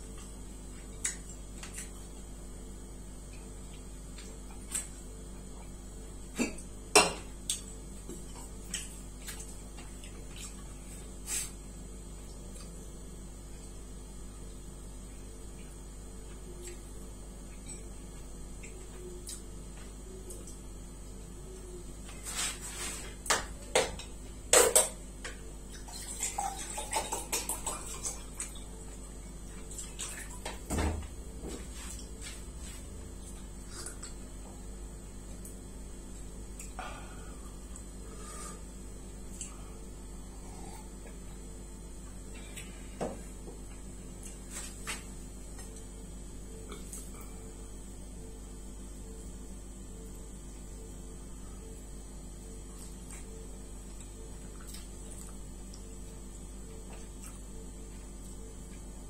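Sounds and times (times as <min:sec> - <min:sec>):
steady low hum: 0:00.0 - 0:59.0
chewing and lip-smacking: 0:53.9 - 0:55.8, 0:56.9 - 0:57.5.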